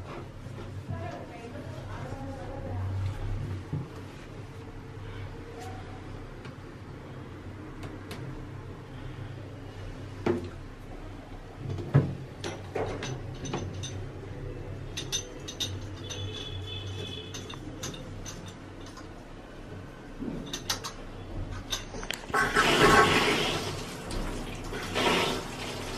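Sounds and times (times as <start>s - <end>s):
metallic clicks and taps: 17.2s - 19.2s, 20.4s - 22.3s
water rushing through valve: 22.3s - 25.9s.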